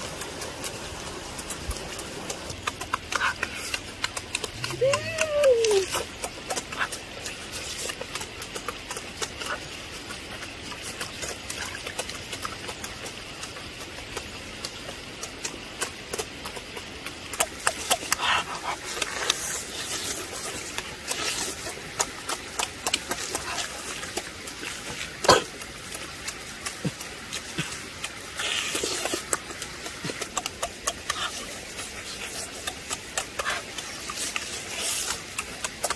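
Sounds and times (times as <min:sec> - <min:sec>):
wet chewing and lip-smacking: 0:00.0 - 0:35.9.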